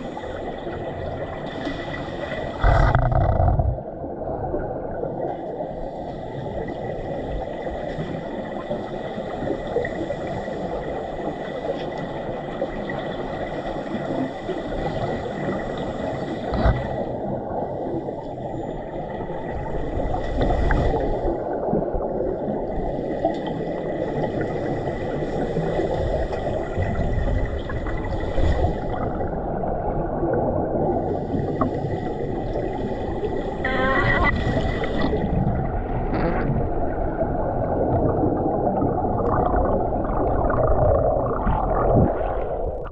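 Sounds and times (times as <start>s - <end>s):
underwater rushing noise: 0.0s - 42.9s
air bubbles gurgling: 2.2s - 5.3s, 23.6s - 42.9s
faint high tones: 33.6s - 34.4s.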